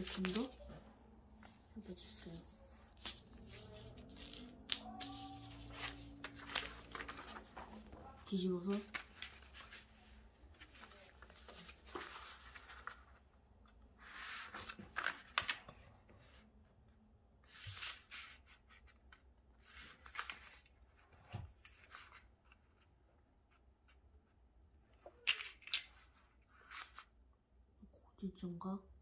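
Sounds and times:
paper rustling and crinkling: 0:00.0 - 0:13.2, 0:14.0 - 0:15.8, 0:19.6 - 0:22.9.

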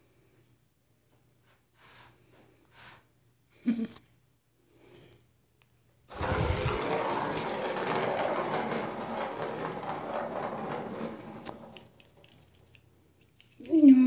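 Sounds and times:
plastic ball rattling round track: 0:06.1 - 0:13.9.

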